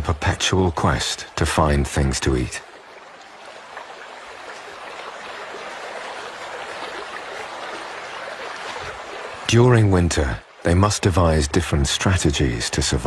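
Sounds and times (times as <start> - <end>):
river rushing: 0.0 - 10.9.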